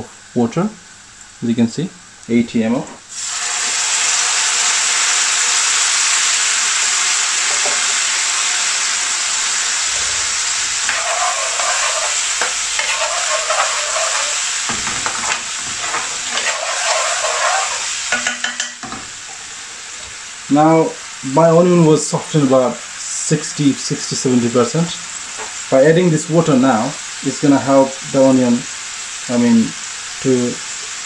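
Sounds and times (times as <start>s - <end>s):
onions sizzling in oil: 3.1s - 31.0s
metal spoon scraping a pan: 7.5s - 7.8s, 10.8s - 19.0s.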